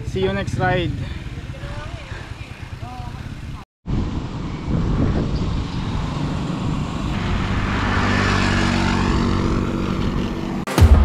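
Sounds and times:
bicycle road noise: 0.0s - 10.7s
vehicle engine hum: 0.0s - 10.7s
wind noise: 3.9s - 10.6s.

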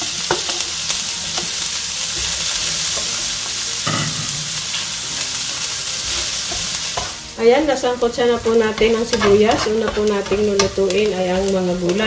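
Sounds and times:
onion sizzling in a frying pan: 0.0s - 12.0s
plastic spatula scraping and stirring: 8.8s - 10.7s.

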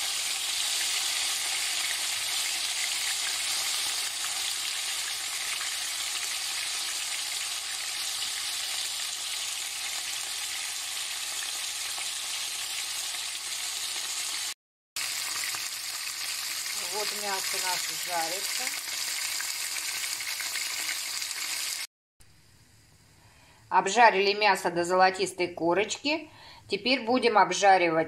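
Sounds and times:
meat sizzling in hot oil: 0.0s - 21.9s.

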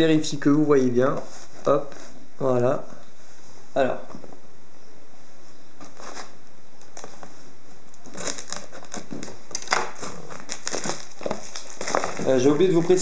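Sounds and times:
plastic shrink-wrap crinkling: 7.9s - 13.0s.

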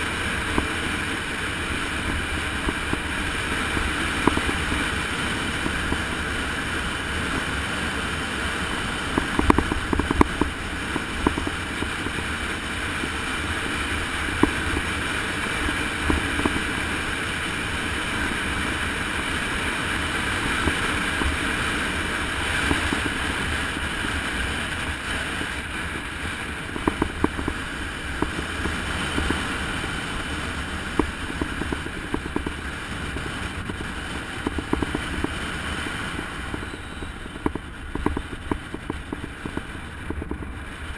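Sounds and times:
low road rumble: 0.0s - 40.9s
wind rushing over microphone: 0.0s - 40.9s
sharp clicks and rattles: 9.1s - 12.2s, 26.5s - 29.4s, 30.9s - 35.4s, 36.1s - 40.5s.

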